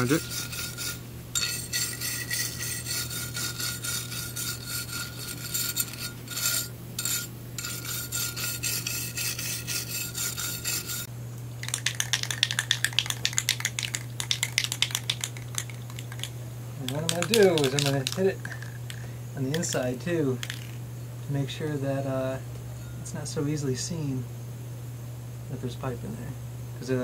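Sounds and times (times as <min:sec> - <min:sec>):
wire brush scrubbing metal pipe: 0:00.0 - 0:20.7
sharp rattling clicks: 0:11.6 - 0:20.8.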